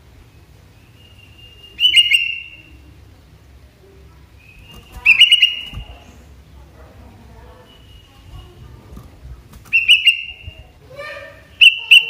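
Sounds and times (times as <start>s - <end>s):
bird chirpy whistled calls: 0.8s - 2.8s, 4.4s - 5.8s, 7.6s - 8.3s, 9.7s - 10.6s, 11.5s - 12.0s
faint thin whistle: 7.6s - 8.6s.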